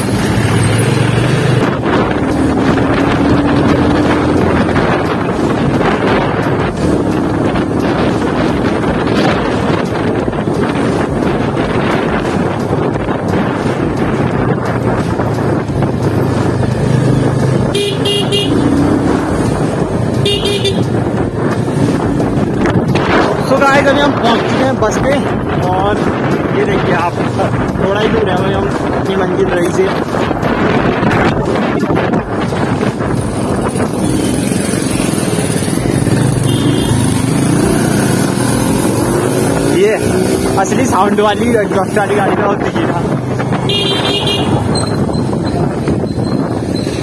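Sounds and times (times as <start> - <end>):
motorcycle engine running: 0.0 - 47.0
horn beeps: 17.7 - 18.6, 36.4 - 37.1, 43.7 - 47.0.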